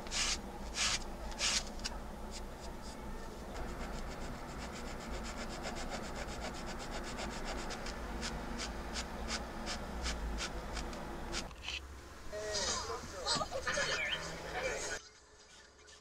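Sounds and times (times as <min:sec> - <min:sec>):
file scratching wood: 0:03.6 - 0:11.5.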